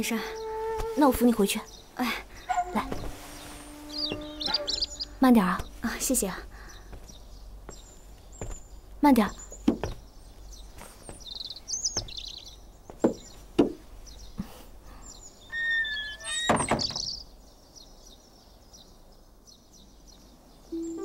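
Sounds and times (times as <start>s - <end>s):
door creaking: 0.0s - 1.5s, 2.2s - 6.1s, 15.5s - 17.2s
bird chirps: 0.0s - 13.4s, 14.1s - 19.0s
door shutting: 2.5s - 5.9s, 15.5s - 17.2s
wooden doors knocking: 9.6s - 10.0s.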